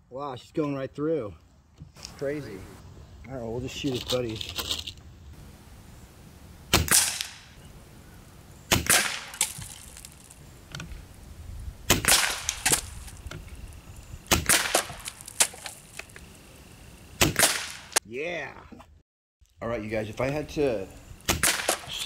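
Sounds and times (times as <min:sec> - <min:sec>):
air rifle shots: 0:06.7 - 0:07.6, 0:08.7 - 0:09.6, 0:11.9 - 0:13.0, 0:14.3 - 0:15.6, 0:17.2 - 0:18.0, 0:21.3 - 0:22.0
pellet hitting a can: 0:14.3 - 0:15.8.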